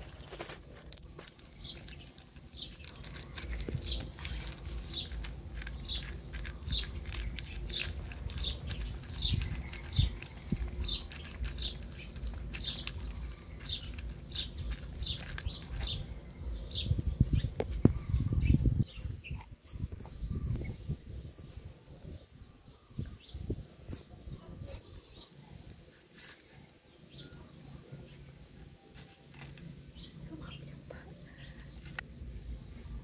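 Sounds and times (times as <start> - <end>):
small bird chirping: 0.0 - 33.0
puppy licking and crunching ice: 0.2 - 16.2.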